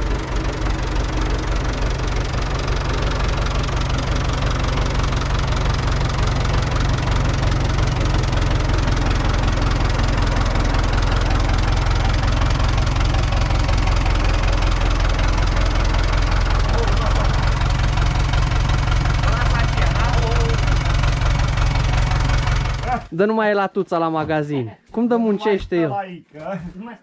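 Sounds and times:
tractor diesel engine running: 0.0s - 23.2s.

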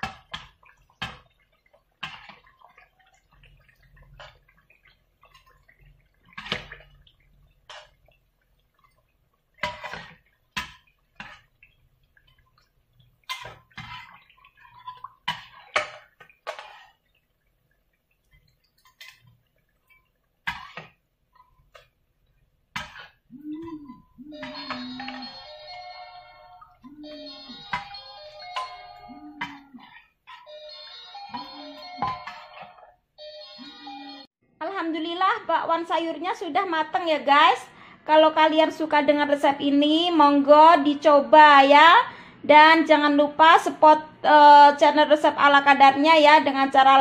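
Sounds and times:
frying oil crackling: 0.0s - 23.3s
metal utensils scraping a pot: 9.6s - 11.5s, 13.2s - 17.0s.

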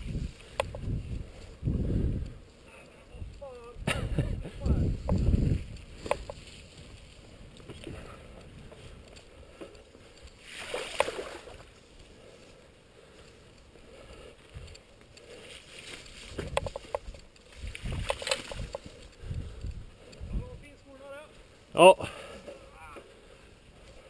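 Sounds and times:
wind on microphone: 0.0s - 2.5s, 3.1s - 9.2s, 16.2s - 20.8s.

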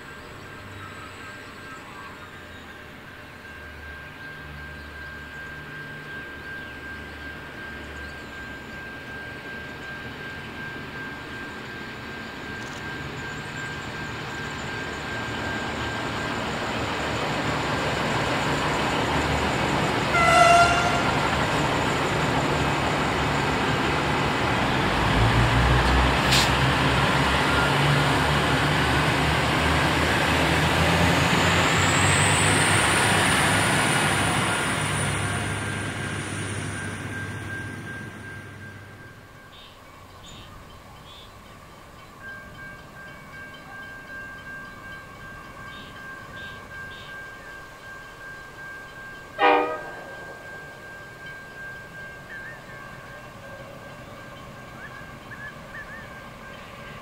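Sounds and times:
train rumbling past on rails: 0.0s - 57.0s
train horn toot: 20.1s - 21.3s, 49.4s - 50.3s.

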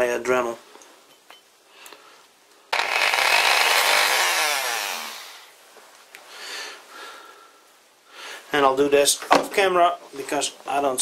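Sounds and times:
rotary tool sanding metal: 2.8s - 5.5s.

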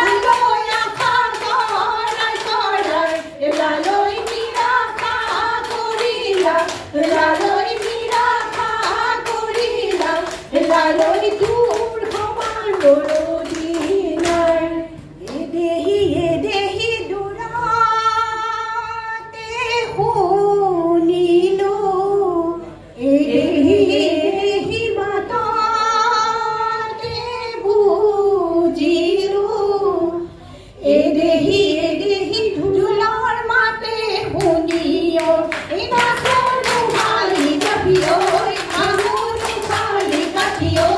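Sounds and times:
hand clapping: 0.0s - 14.6s, 34.4s - 40.9s
women singing: 0.0s - 40.9s.

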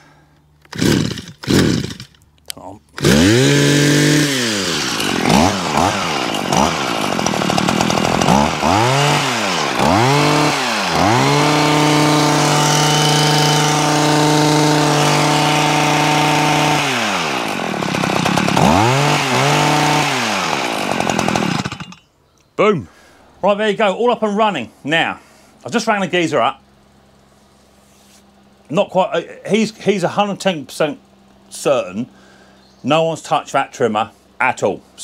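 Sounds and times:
hedge trimmer engine revving: 0.6s - 2.2s, 2.8s - 22.0s.

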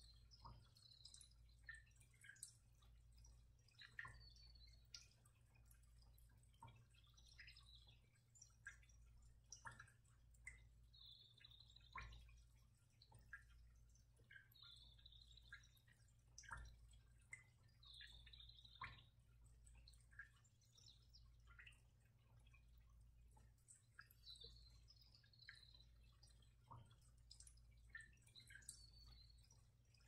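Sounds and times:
faint drip-like plinks: 0.0s - 30.0s.

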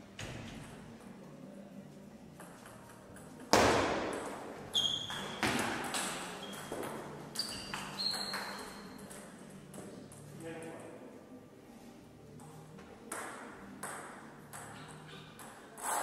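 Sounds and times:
shoes squeaking on floor: 4.6s - 9.2s.

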